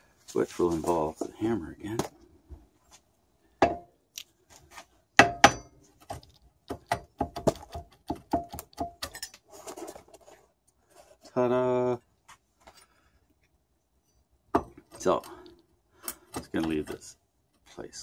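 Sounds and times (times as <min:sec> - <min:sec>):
hammer tapping on metal: 0:05.2 - 0:05.8.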